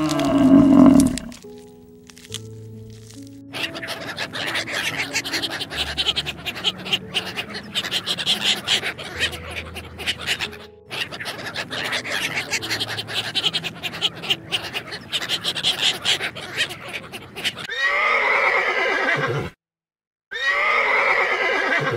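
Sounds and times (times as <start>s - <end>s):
horse whinnying: 0.0s - 1.4s, 17.7s - 19.6s, 20.3s - 21.9s
ducks chattering: 0.0s - 1.6s, 2.9s - 18.4s.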